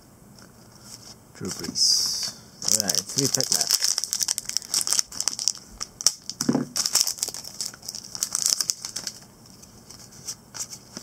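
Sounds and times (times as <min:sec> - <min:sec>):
foil wrapper tearing and crinkling: 0:02.6 - 0:10.0.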